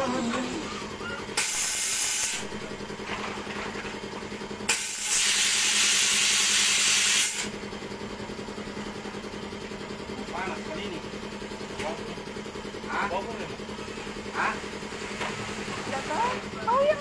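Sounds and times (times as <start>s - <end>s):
machinery humming: 0.0s - 17.0s
compressed air hissing: 1.4s - 2.5s, 4.7s - 7.5s.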